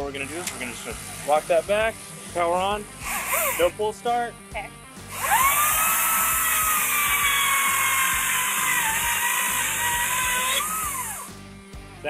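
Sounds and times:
chainsaw cutting wooden board: 0.0 - 3.9, 5.0 - 11.4
cordless chainsaw whining: 0.0 - 4.0, 5.0 - 11.4.

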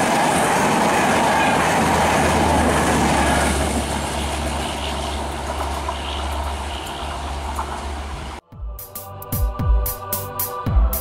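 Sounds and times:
train wheels on rails: 0.0 - 8.4.

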